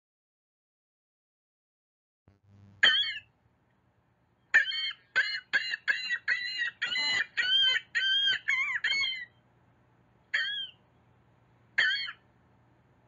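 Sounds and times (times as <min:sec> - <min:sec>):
gull laughing call: 0:04.6 - 0:09.3.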